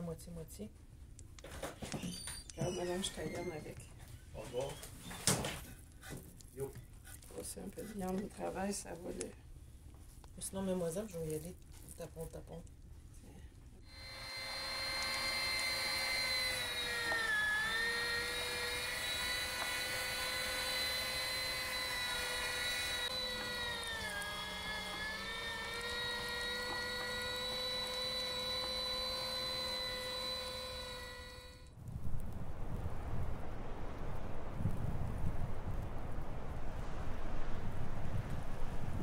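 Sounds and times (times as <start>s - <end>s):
meat grinder motor whining: 13.8s - 31.7s.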